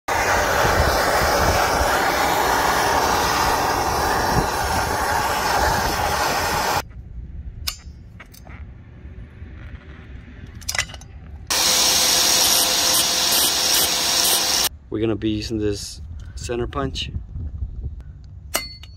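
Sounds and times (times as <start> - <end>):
gas torch hissing: 0.0 - 6.8, 11.5 - 14.7
angle grinder grinding metal: 11.5 - 14.7.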